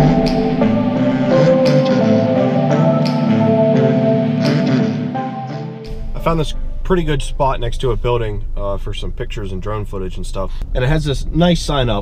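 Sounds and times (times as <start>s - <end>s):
background music with held notes: 0.0s - 6.8s.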